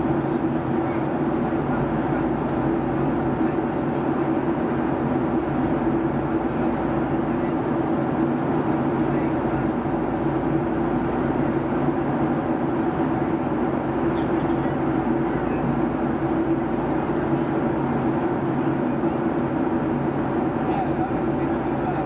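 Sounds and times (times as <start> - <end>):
low jet engine hum: 0.0 - 22.0.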